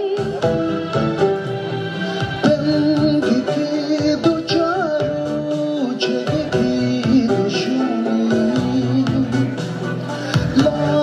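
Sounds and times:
instrumental accompaniment with beat: 0.0 - 11.0
man singing into a microphone: 2.4 - 11.0.

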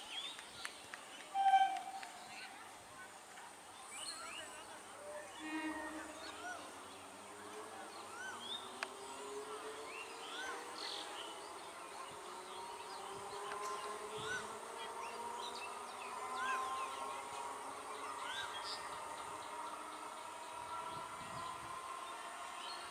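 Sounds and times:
electric train whine: 1.3 - 2.4, 18.3 - 22.9
bird chirps: 1.3 - 2.5.

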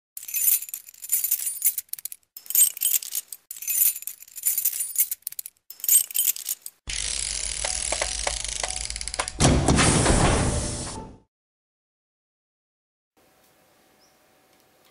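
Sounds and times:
metallic clinking and jingling: 0.2 - 6.8.

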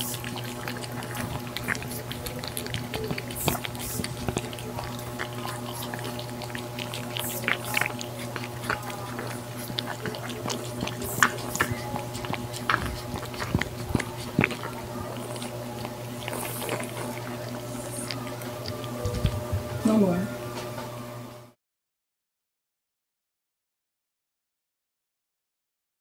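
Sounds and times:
cats chewing and licking: 0.0 - 20.5
steady low hum: 0.0 - 21.6.

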